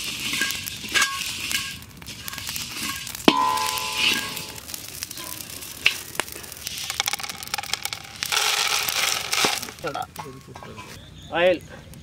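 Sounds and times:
spatula scraping seeds in pan: 0:00.0 - 0:06.0, 0:06.6 - 0:11.0
seeds rattling in metal pan: 0:00.0 - 0:10.4
spatula clanging on pan: 0:02.8 - 0:04.6.

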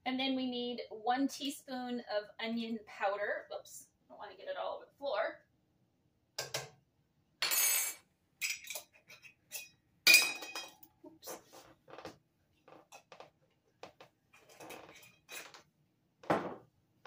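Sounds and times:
glass jar clinking: 0:07.4 - 0:10.8.

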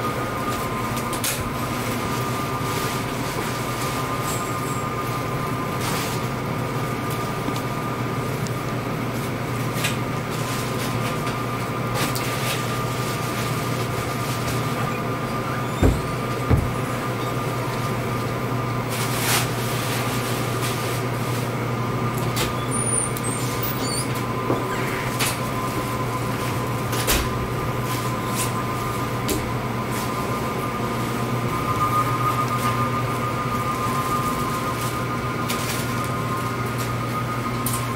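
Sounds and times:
air handling fans humming: 0:00.0 - 0:37.9
low thumps: 0:15.7 - 0:17.0.

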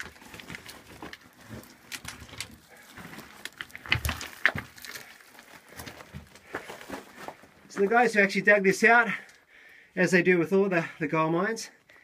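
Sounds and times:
scuffs and scrapes on rock: 0:00.0 - 0:07.5.

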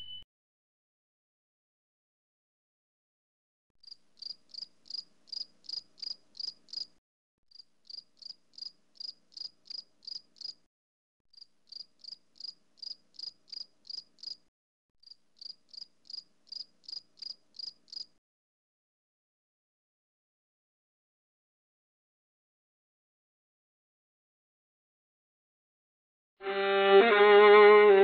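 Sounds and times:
cricket chirping: 0:03.8 - 0:06.9, 0:07.5 - 0:10.6, 0:11.3 - 0:14.4, 0:15.0 - 0:18.2.

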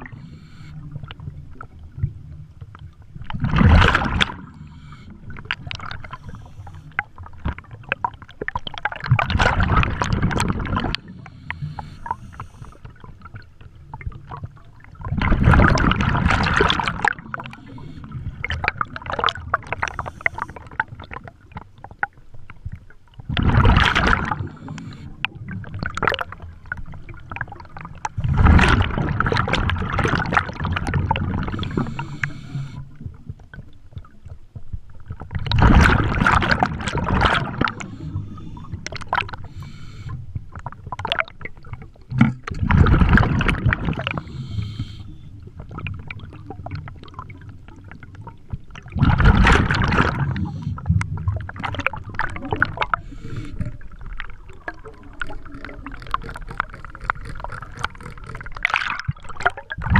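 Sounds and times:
rushing gurgling bubbles: 0:00.0 - 0:59.9.

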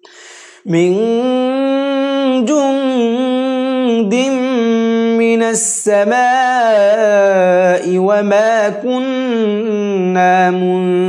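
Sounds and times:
hissy intake of breath: 0:00.0 - 0:00.7
person reciting melodically: 0:00.0 - 0:11.0.

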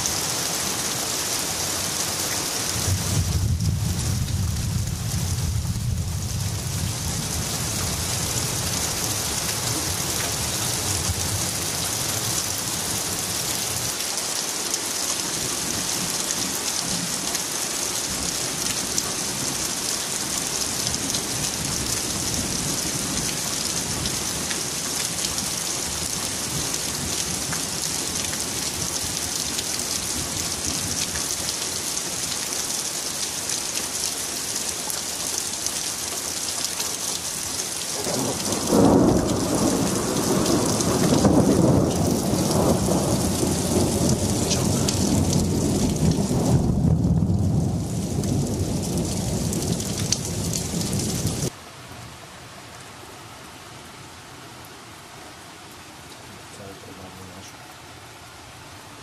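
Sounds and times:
heavy rain falling: 0:00.0 - 0:53.6, 0:55.2 - 0:59.0
thunder rumble: 0:02.8 - 0:08.0, 0:38.0 - 0:51.5
water dripping off roof edge: 0:35.0 - 0:46.4.

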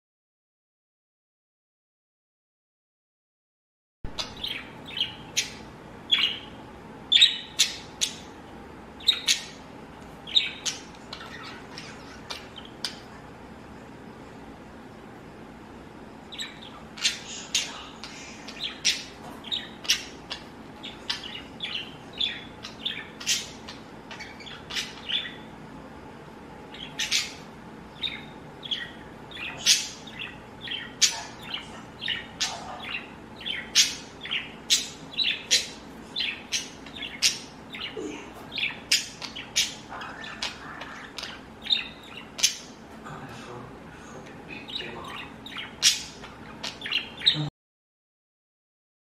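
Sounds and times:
budgerigars chirping: 0:04.1 - 0:08.4, 0:09.0 - 0:13.1, 0:16.3 - 0:25.5, 0:26.7 - 0:42.8, 0:44.5 - 0:47.4.

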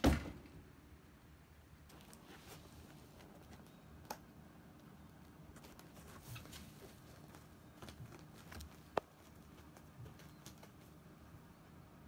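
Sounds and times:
cat rustling on mat: 0:01.9 - 0:03.6, 0:05.5 - 0:11.0.

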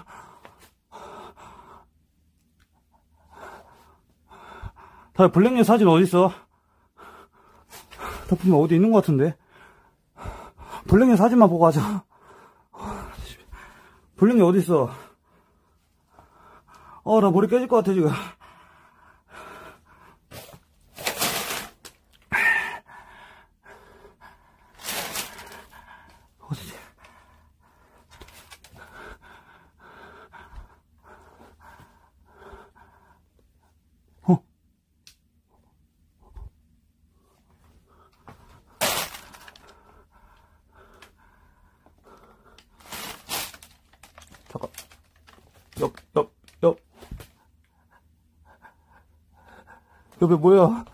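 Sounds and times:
person breathing hard: 0:00.0 - 0:02.1, 0:02.8 - 0:05.2, 0:06.3 - 0:08.6, 0:09.4 - 0:11.0, 0:11.8 - 0:14.2, 0:14.8 - 0:17.1, 0:18.0 - 0:33.8, 0:36.1 - 0:45.8, 0:47.2 - 0:50.9
rustling through clothes and bags: 0:20.3 - 0:22.2, 0:24.7 - 0:25.8, 0:38.3 - 0:39.8, 0:42.6 - 0:47.4.

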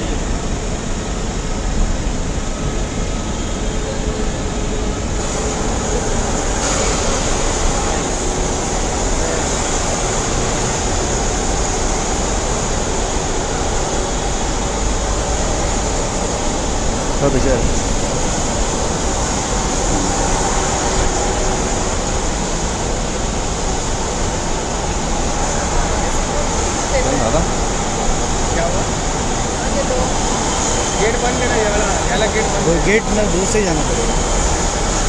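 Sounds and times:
rumble and hiss background noise: 0:00.0 - 0:35.0.

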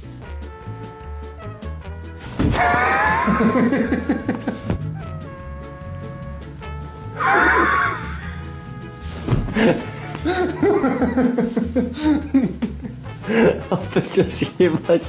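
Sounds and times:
background music with bass line: 0:00.0 - 0:15.0
man laughing: 0:02.6 - 0:04.8, 0:07.2 - 0:08.3, 0:09.6 - 0:14.6.

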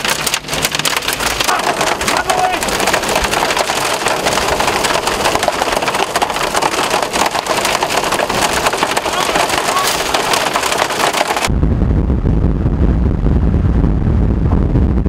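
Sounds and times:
hail hitting vehicle: 0:00.0 - 0:11.5.

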